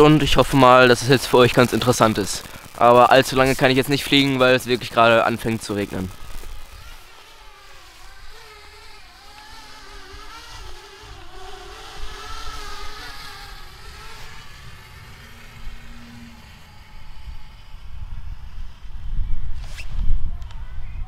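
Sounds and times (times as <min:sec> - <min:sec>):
drone propellers buzzing: 0:00.0 - 0:20.3
low rumble: 0:10.6 - 0:21.0.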